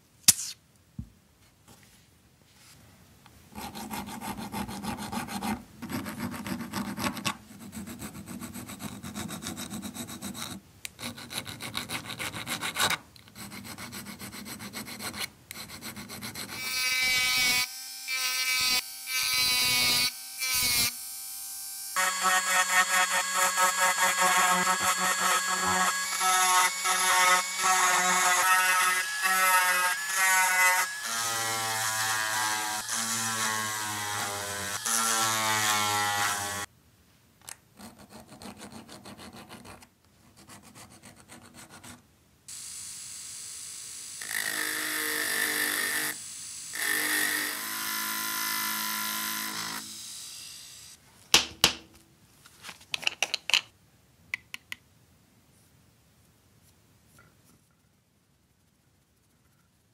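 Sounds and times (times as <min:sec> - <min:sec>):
rotary tool grinding metal: 0:22.0 - 0:36.7.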